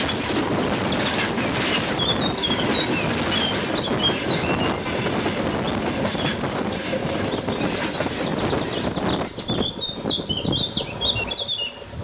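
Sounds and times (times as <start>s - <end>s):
freight train wagons rumbling and rattling: 0.0s - 12.0s
small birds chirping: 7.3s - 11.9s.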